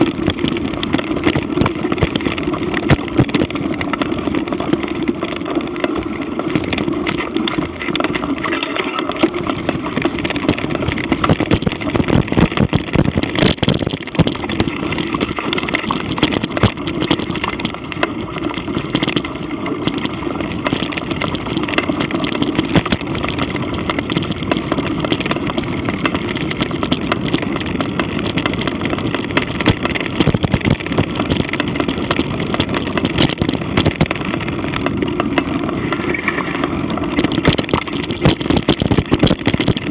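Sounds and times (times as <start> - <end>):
rattles and knocks from bumps: 0.0 - 39.9
ride rumble over rough trail: 0.0 - 39.9.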